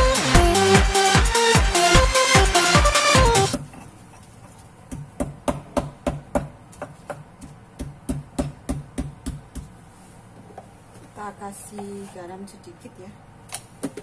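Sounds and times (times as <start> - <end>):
background music: 0.0 - 3.6
stone pestle pounding in mortar: 4.9 - 9.7.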